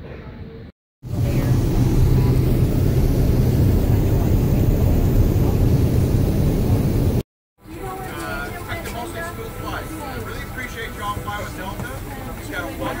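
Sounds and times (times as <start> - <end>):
airliner cabin rumble: 1.1 - 7.2.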